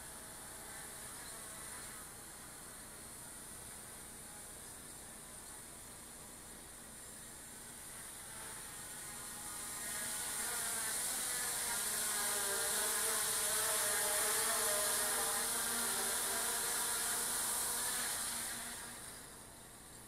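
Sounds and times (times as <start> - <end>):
drone buzzing in flight: 0.0 - 19.7.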